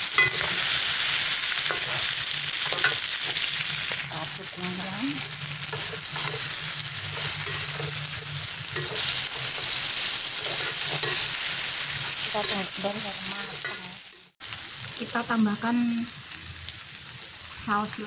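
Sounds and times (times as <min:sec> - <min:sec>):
metal spatula scraping pan: 0:00.0 - 0:00.7, 0:05.2 - 0:14.3
food sizzling in a wok: 0:00.0 - 0:18.0.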